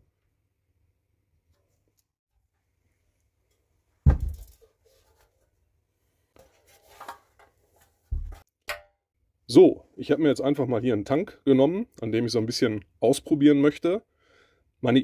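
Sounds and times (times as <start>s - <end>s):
dull thud: 4.0s - 4.5s.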